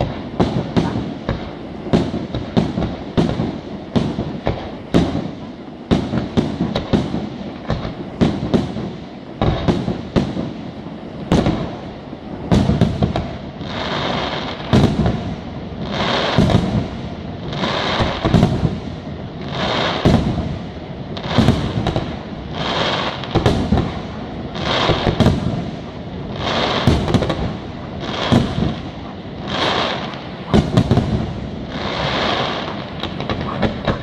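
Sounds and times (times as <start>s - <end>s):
high firework hiss: 0.0s - 34.0s
firework shells bursting: 12.4s - 34.0s.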